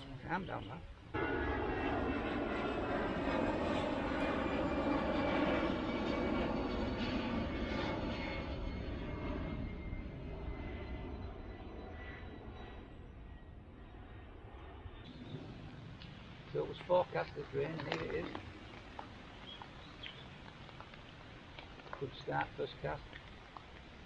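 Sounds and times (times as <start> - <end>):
aircraft engine drone: 0.0 - 24.0.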